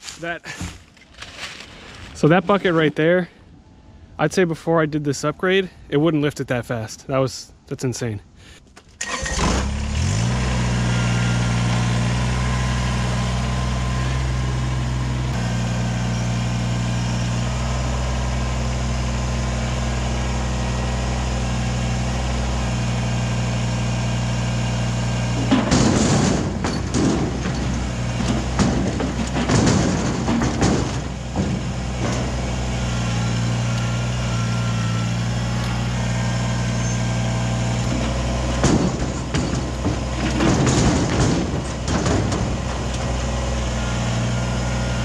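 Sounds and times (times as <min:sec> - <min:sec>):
rocks clattering into trailer: 0:00.0 - 0:03.0, 0:25.2 - 0:32.9, 0:37.8 - 0:43.5
diesel tractor engine running: 0:09.0 - 0:45.0.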